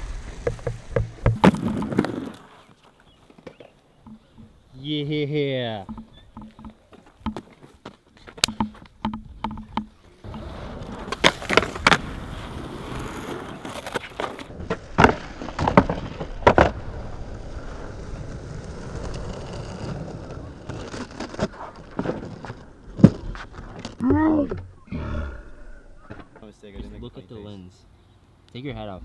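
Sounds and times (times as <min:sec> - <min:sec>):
skateboard wheels rolling on concrete: 0:00.0 - 0:24.7
skateboard clacking on concrete: 0:05.8 - 0:12.1.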